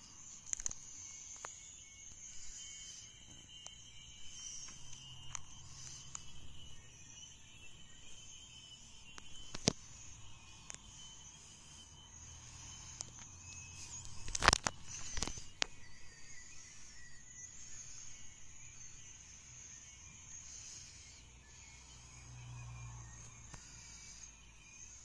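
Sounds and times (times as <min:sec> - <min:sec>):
fingers tapping a smartphone: 0:00.1 - 0:18.1, 0:23.1 - 0:25.0.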